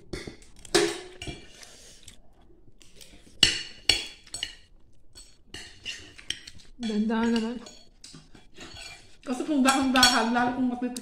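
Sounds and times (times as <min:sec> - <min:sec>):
fork clinking on ceramic plate: 0:03.4 - 0:10.4.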